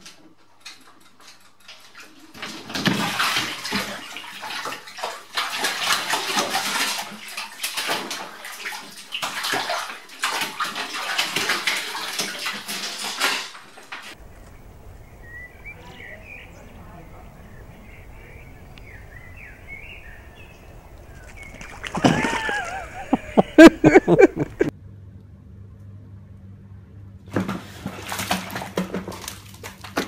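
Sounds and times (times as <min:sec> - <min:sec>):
cat splashing in bathtub water: 0:01.8 - 0:14.2, 0:16.0 - 0:23.4, 0:27.3 - 0:30.0.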